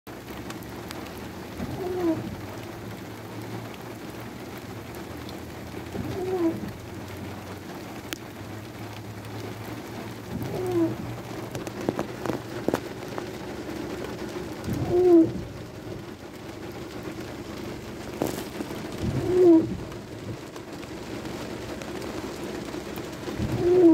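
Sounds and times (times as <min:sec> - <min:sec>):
rain hissing: 0:00.1 - 0:23.9
bird low call: 0:10.4 - 0:11.1, 0:23.6 - 0:23.9.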